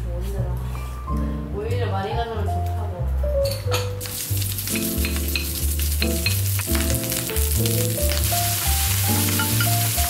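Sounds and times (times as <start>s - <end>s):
background music: 0.0s - 10.0s
rice sizzling in a pan: 4.0s - 10.0s.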